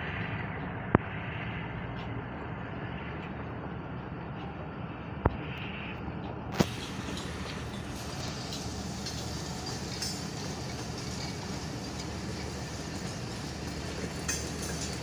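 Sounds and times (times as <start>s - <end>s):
train wheels on rails: 0.0s - 15.0s.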